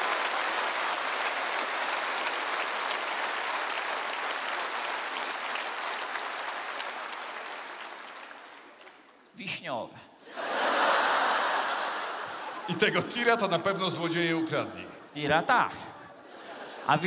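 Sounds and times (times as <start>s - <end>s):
large audience applauding: 0.0s - 9.3s, 10.4s - 14.8s.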